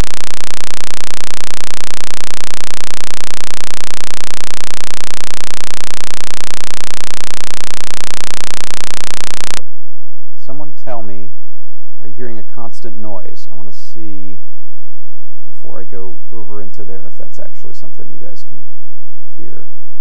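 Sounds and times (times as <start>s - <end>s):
steady buzz: 0.0s - 9.8s.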